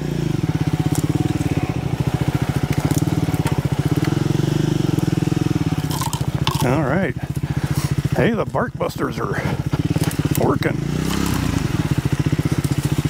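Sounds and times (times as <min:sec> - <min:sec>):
motorcycle engine running: 0:00.0 - 0:13.0
twigs crackling and breaking: 0:02.7 - 0:04.1.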